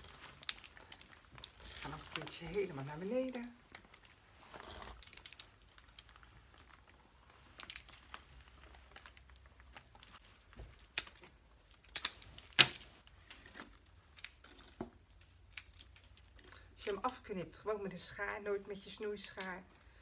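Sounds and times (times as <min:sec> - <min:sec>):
moss rustling and crinkling: 0:00.0 - 0:17.2
binding wire clicks: 0:10.8 - 0:12.8.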